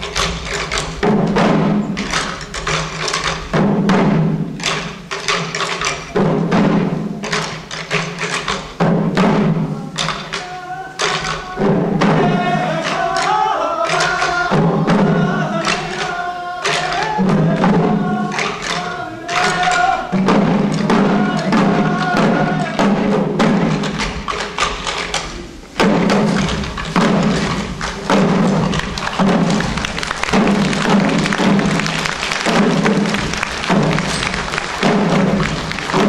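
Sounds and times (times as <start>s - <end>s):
small drums beaten: 0.0s - 36.0s
voices chanting: 9.6s - 23.3s.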